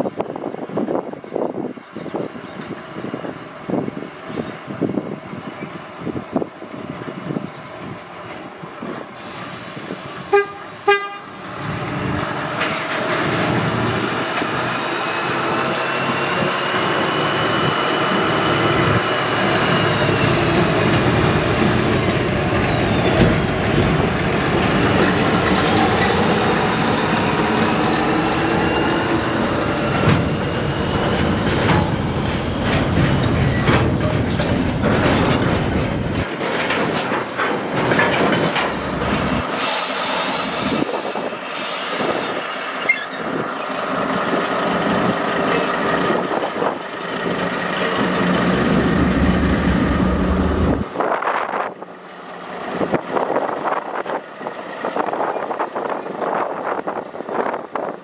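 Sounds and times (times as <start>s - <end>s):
train running noise: 0.0s - 58.0s
locomotive horn blasts: 10.2s - 11.4s
high whine: 47.8s - 51.2s.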